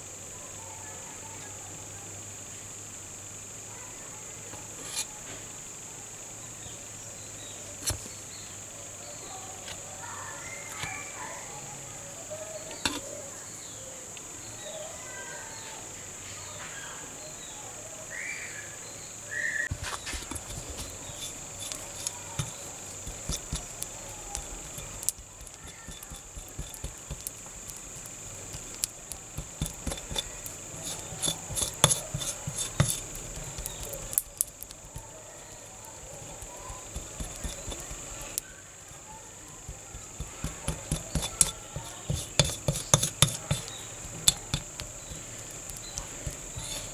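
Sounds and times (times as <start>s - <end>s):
metal spatula scraping steel plate: 12.8s - 13.1s, 19.9s - 27.3s, 29.4s - 34.2s, 36.2s - 38.4s, 39.9s - 46.9s.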